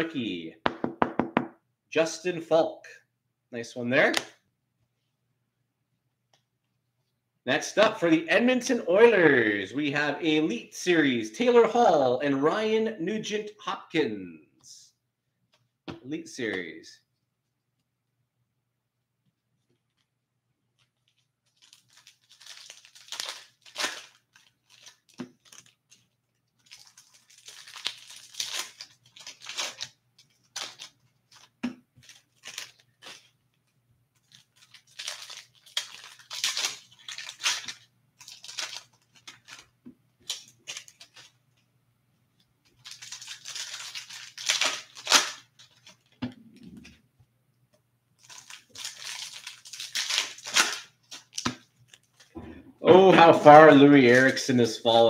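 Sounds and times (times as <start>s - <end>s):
foil wrapper tearing and crinkling: 20.7s - 33.6s, 34.2s - 41.4s, 42.8s - 46.2s, 48.2s - 52.3s.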